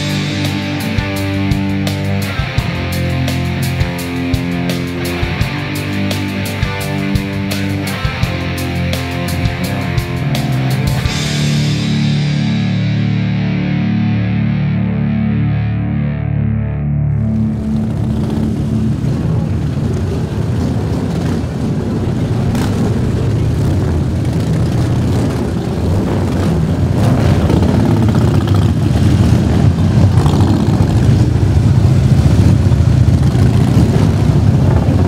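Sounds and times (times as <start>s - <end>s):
motorcycles riding past: 17.2s - 35.0s.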